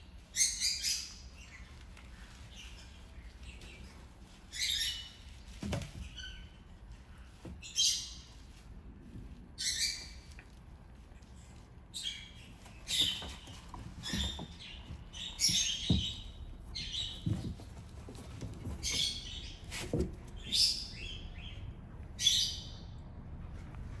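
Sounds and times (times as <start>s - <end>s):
small birds chirping: 0.0s - 23.1s
kittens tussling on a mat: 12.6s - 20.4s.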